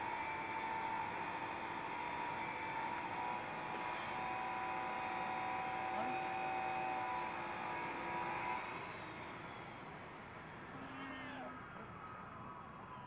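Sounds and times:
mechanical hum with held tones: 0:00.0 - 0:13.0.

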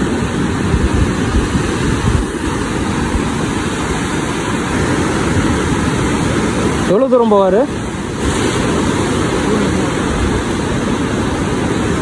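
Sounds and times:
surf breaking on beach: 0:00.0 - 0:12.0
wind buffeting microphone: 0:00.0 - 0:12.0.

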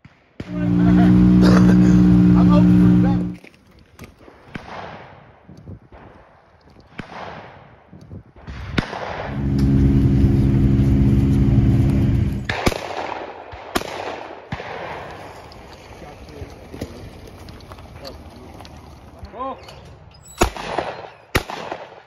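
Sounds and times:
utility vehicle engine running: 0:00.4 - 0:03.4, 0:09.2 - 0:12.6
shotgun shots with echo: 0:04.5 - 0:05.3, 0:06.9 - 0:07.7, 0:08.4 - 0:09.6, 0:12.5 - 0:15.1, 0:20.4 - 0:22.0.

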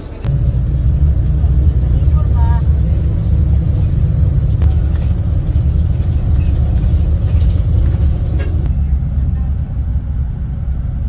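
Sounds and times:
bus engine and road rumble: 0:00.0 - 0:11.0
light rattles and clicks: 0:04.4 - 0:08.7.

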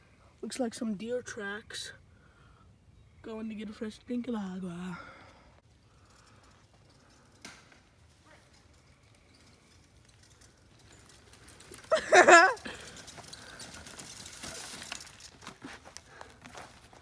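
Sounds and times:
bike rolling over dirt: 0:05.9 - 0:17.0.

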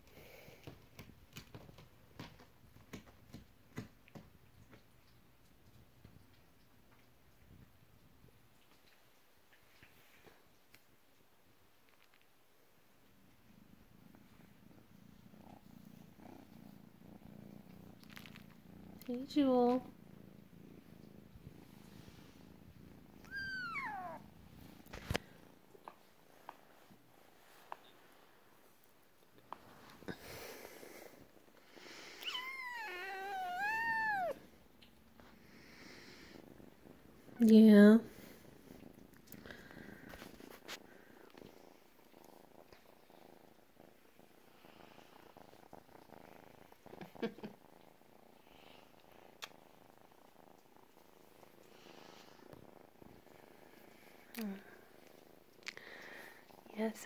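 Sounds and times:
kitten purring: 0:00.0 - 0:57.0
kitten meowing: 0:23.2 - 0:24.2, 0:32.2 - 0:34.4.

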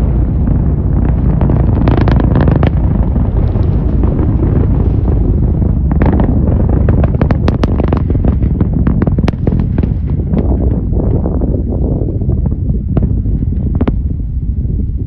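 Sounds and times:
distant rocket engine rumble: 0:00.0 - 0:15.0
crackling pops: 0:00.8 - 0:11.2.

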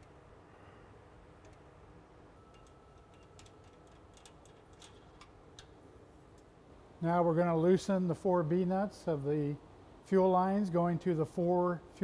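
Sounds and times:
low steady hum: 0:00.0 - 0:12.0
metallic clicks and ticks: 0:01.4 - 0:01.7, 0:02.5 - 0:05.8.

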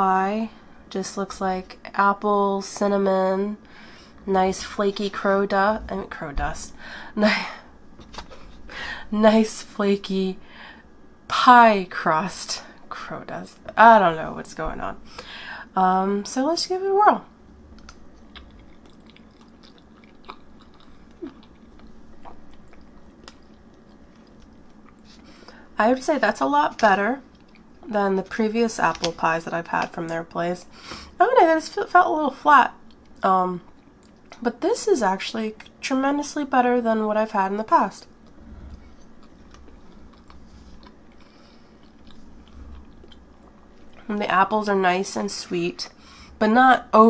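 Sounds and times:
chewing food: 0:17.7 - 0:25.6, 0:26.7 - 0:27.9, 0:32.8 - 0:34.4, 0:38.0 - 0:44.1
small mouth clicks: 0:17.8 - 0:25.1.

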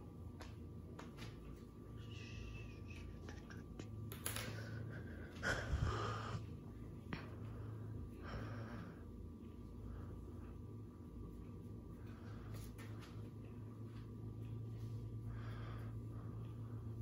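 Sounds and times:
low hum: 0:00.0 - 0:17.0
person breathing: 0:04.4 - 0:10.6, 0:14.9 - 0:17.0.

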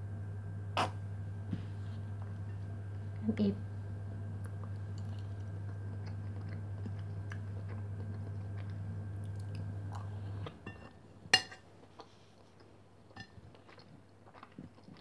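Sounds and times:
low hum: 0:00.0 - 0:11.6
person chewing: 0:04.4 - 0:10.6, 0:11.8 - 0:15.0.

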